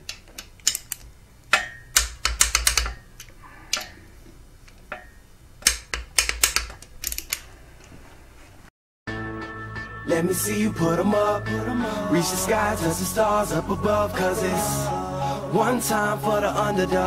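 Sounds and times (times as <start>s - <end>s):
socket ratchet clicking: 0.0s - 4.0s, 5.6s - 7.5s.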